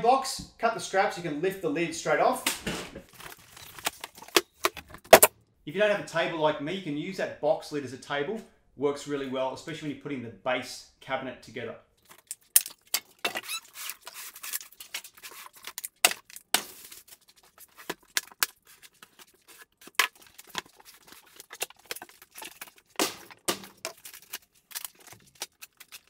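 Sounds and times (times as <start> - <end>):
plastic wrap rustling: 3.0 - 5.2, 12.0 - 26.0
utility knife cutting straps: 13.0 - 16.6.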